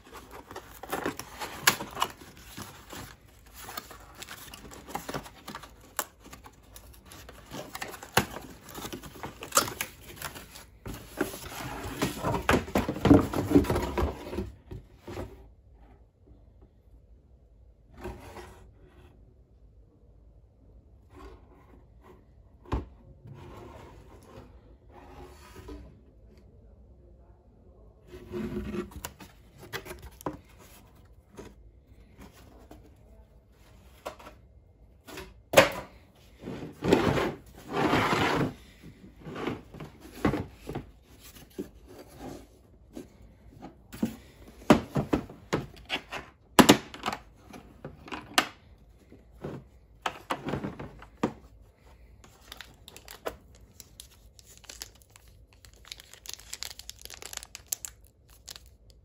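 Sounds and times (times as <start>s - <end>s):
cardboard box sliding and rustling: 36.4s - 42.6s
plastic wrap crinkling: 52.3s - 59.0s.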